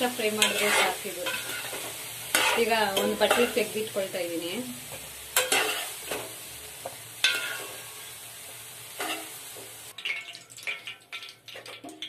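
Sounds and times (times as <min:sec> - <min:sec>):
chunks sizzling in oil: 0:00.0 - 0:12.0
spatula scraping a pan: 0:00.2 - 0:03.8, 0:04.9 - 0:08.2, 0:08.9 - 0:09.6.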